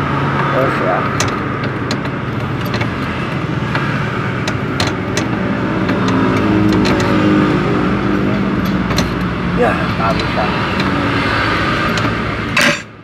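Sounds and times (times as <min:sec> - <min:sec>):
vehicle engine running: 0:00.0 - 0:13.0
sharp clicks and taps: 0:01.1 - 0:07.3, 0:08.6 - 0:11.0.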